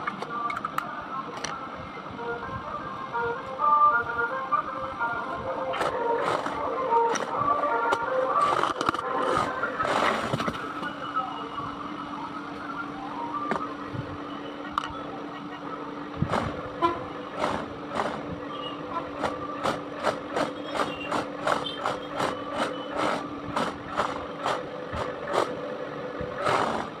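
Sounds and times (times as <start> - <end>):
toy car motor hum: 26.4 - 27.0.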